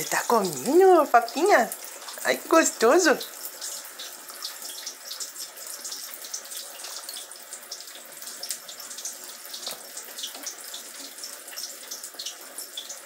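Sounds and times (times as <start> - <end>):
running water splashing: 0.0 - 13.0.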